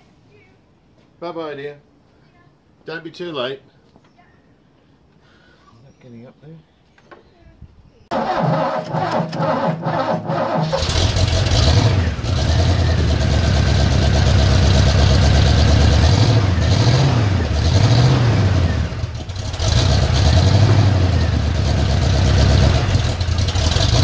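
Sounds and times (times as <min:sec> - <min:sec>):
engine cranking and catching: 0:08.1 - 0:24.0
rough running engine revving: 0:08.1 - 0:24.0.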